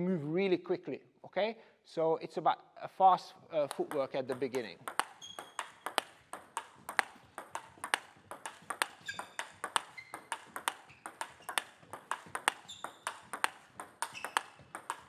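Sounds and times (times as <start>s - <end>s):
table tennis ball clicking: 3.7s - 15.0s.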